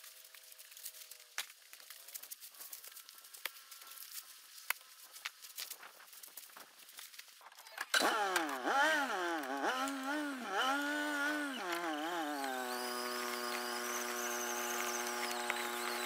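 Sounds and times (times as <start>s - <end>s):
motor whining: 8.0s - 16.0s.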